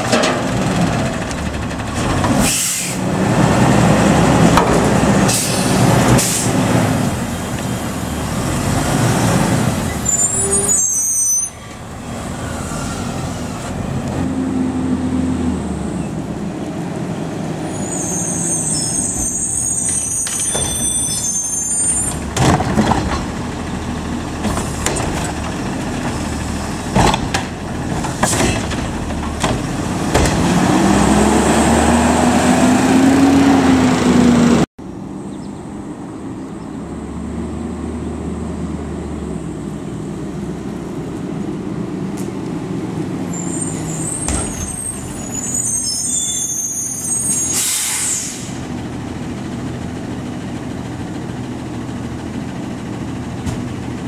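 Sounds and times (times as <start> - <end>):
diesel engine revving: 0.0 - 10.8, 21.6 - 34.7
air brake hiss: 2.4 - 3.0, 47.3 - 48.6.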